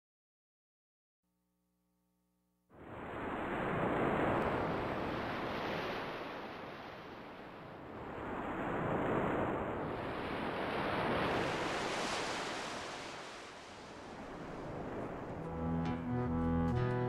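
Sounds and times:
music with low bowed strings: 0:15.4 - 0:17.0.

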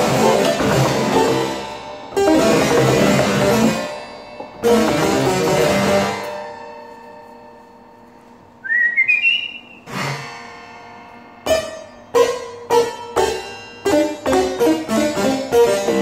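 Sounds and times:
harpsichord chords and notes: 0:00.0 - 0:07.4, 0:09.9 - 0:16.0
short rising whistle: 0:08.6 - 0:09.9.

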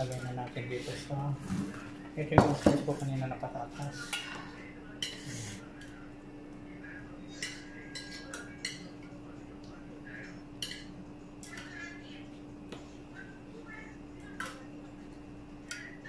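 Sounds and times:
metal tongs clinking on dishes: 0:07.3 - 0:09.0, 0:10.6 - 0:11.7.

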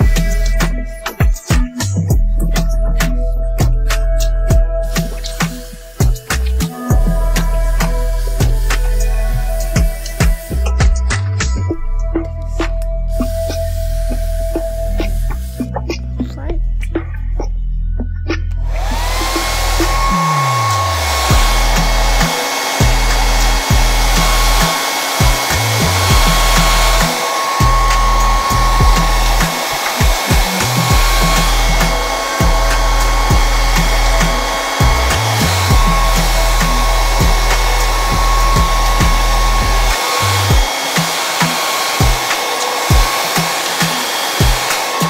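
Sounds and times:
background music: 0:00.0 - 0:45.0
hair dryer running: 0:04.8 - 0:11.0, 0:13.1 - 0:15.6, 0:18.6 - 0:45.0.

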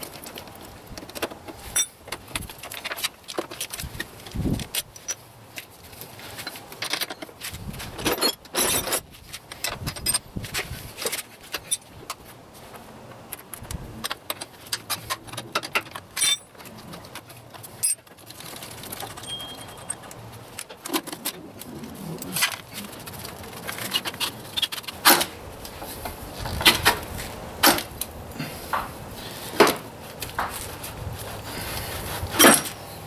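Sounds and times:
metal muffler clinks and clanks: 0:01.0 - 0:05.3, 0:14.0 - 0:21.4, 0:31.5 - 0:33.0.

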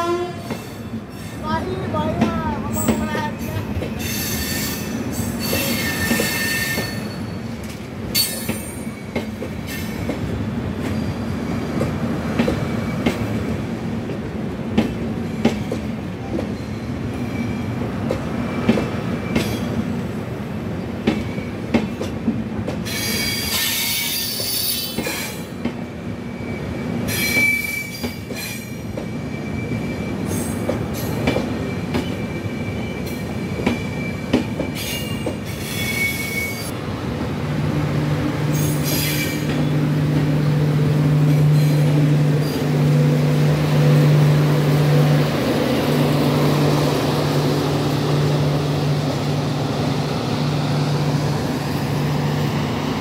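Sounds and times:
train coaches rumbling past: 0:00.0 - 0:53.0
high-pitched wheel squeal: 0:33.8 - 0:36.7.

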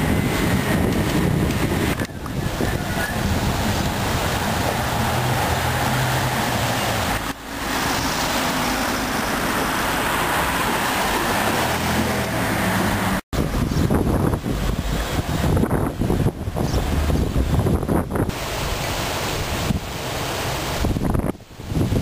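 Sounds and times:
low rumble: 0:00.0 - 0:18.3
traffic noise: 0:00.0 - 0:22.0
wind: 0:00.0 - 0:22.0.

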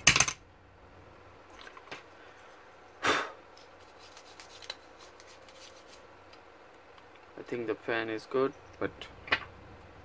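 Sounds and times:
breathy puffs of air: 0:02.2 - 0:03.4
toothbrush scratching a fan: 0:03.6 - 0:06.1.

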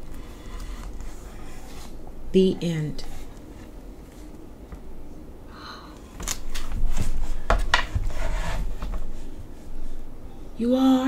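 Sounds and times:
book rustling: 0:00.1 - 0:02.0.

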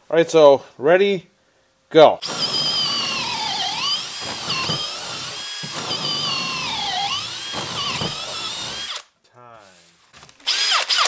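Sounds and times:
hammer drill boring into wood: 0:02.2 - 0:09.1, 0:10.4 - 0:11.0.

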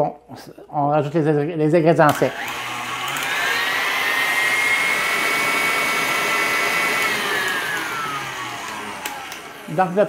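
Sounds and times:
stand mixer motor whine: 0:02.1 - 0:10.0.

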